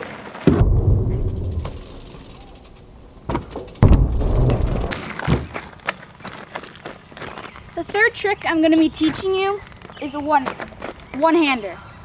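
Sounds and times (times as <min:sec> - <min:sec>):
bike tyres rumbling on wood: 0:03.2 - 0:06.9.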